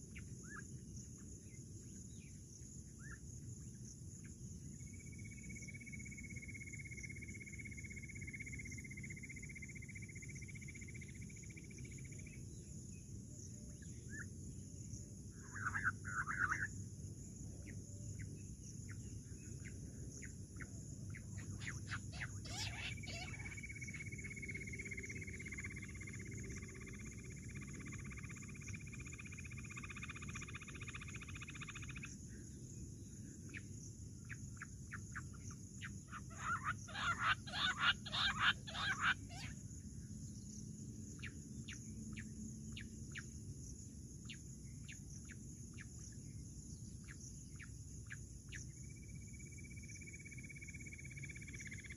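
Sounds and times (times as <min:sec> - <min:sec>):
high insect drone: 0:00.0 - 0:51.9
quail calling sharp notes: 0:22.0 - 0:23.6, 0:36.2 - 0:39.6.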